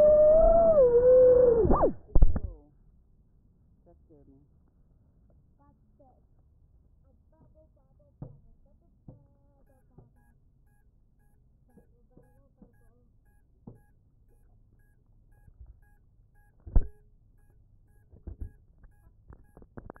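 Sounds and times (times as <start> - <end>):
faint electronic beep: 0.0 - 2.6, 9.5 - 20.0.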